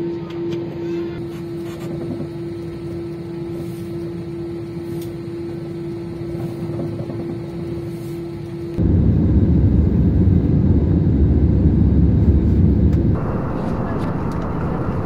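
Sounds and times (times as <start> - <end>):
cabin air rush: 7.6 - 15.0
constant droning tone: 8.7 - 15.0.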